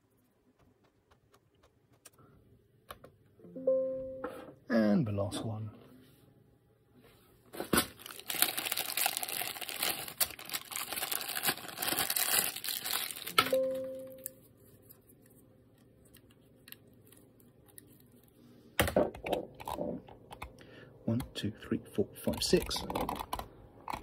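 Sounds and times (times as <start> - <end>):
brief low tone: 3.4 - 4.5, 13.4 - 14.4
crinkling handling noise: 7.0 - 18.5.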